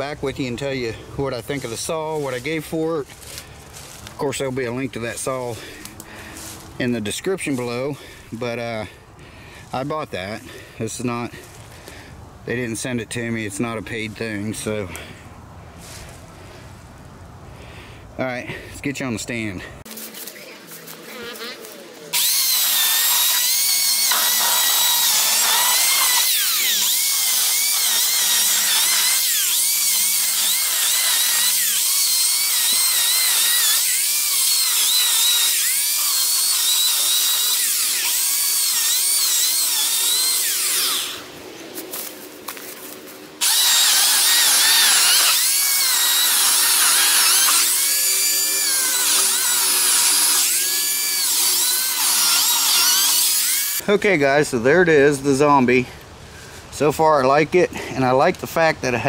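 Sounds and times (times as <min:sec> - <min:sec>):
electric chainsaw cutting wood: 0:21.0 - 0:41.3, 0:43.4 - 0:53.8.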